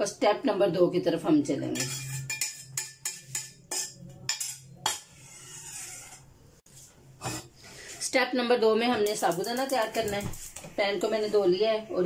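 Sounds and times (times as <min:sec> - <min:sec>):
metal spoon knocking on pan: 0:01.7 - 0:05.1.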